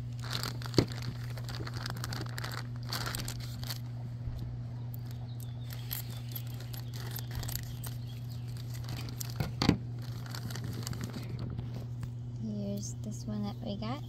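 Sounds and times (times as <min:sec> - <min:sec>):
plastic bag crinkling: 0:00.0 - 0:04.0, 0:05.0 - 0:11.9
steady low hum: 0:00.0 - 0:14.0
scissors cutting plastic: 0:05.0 - 0:11.3.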